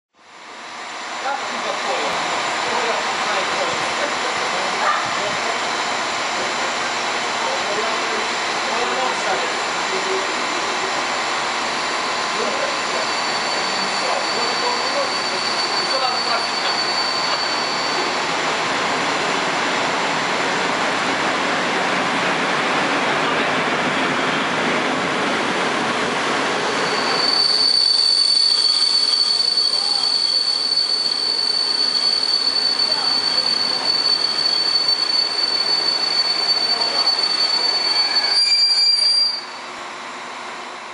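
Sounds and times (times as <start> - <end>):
train rolling past: 0.2 - 40.9
wheels and brakes squealing: 12.1 - 18.5, 26.7 - 39.6.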